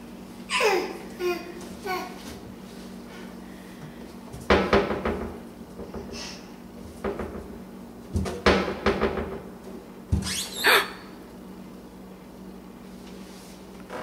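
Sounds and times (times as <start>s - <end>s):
faint steady hum: 0.0s - 14.0s
cabinet door knocking and clattering: 4.5s - 6.1s, 8.2s - 9.4s.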